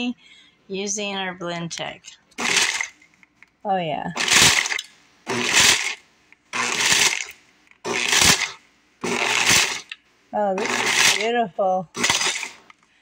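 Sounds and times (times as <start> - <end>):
blender crushing hard candies: 2.4 - 3.0, 4.2 - 10.0, 10.6 - 11.3, 11.9 - 12.7.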